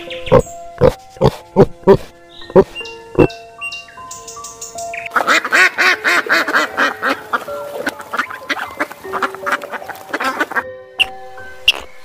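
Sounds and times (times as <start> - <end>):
ducks quacking: 5.1 - 11.1.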